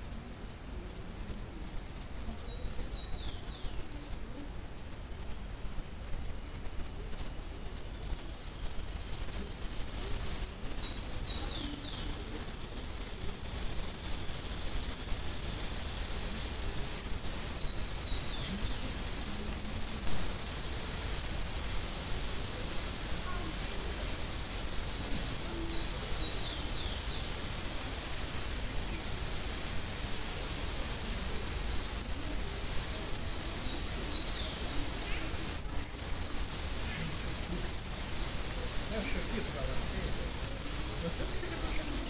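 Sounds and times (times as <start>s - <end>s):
background hiss: 0.0s - 42.0s
small bird calling: 25.1s - 29.3s.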